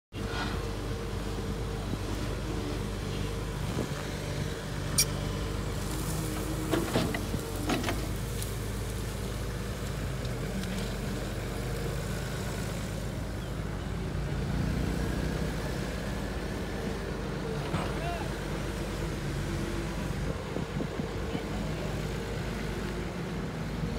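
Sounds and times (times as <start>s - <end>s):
excavator diesel engine running: 0.1s - 23.9s.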